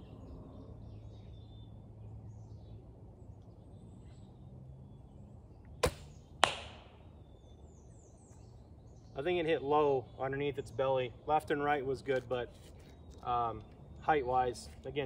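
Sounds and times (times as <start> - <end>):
arrow striking target: 5.8 - 7.0.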